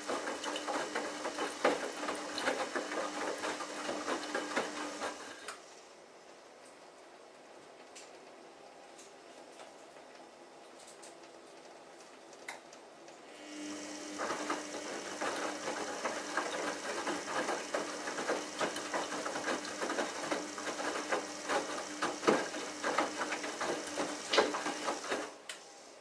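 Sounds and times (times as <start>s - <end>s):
wet laundry tumbling and sloshing: 0.0s - 5.3s, 14.2s - 25.4s
washing machine motor hum: 0.0s - 6.2s, 11.5s - 26.0s.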